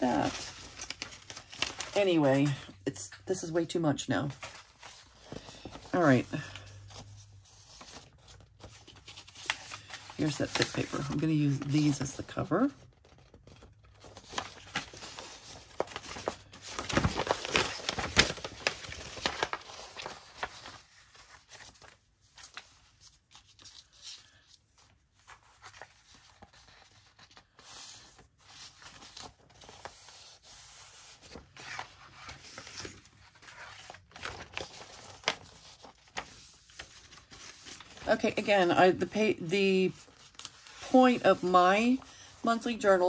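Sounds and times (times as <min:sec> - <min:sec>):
paper rustling: 0:00.0 - 0:02.7, 0:04.2 - 0:43.0.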